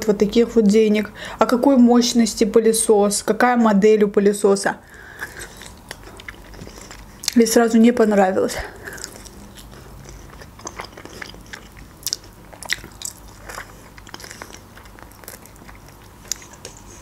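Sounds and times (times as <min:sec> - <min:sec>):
chewing chicken wing: 0:05.1 - 0:07.4, 0:08.8 - 0:17.0.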